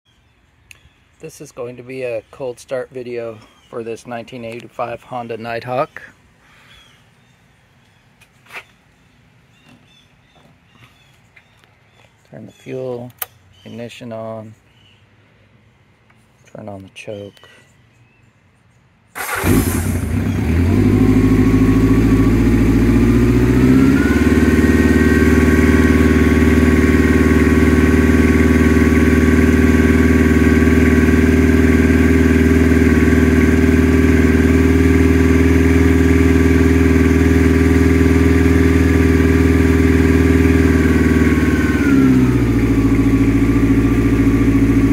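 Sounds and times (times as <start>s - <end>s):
motorcycle engine starting and idling: 19.1s - 44.9s.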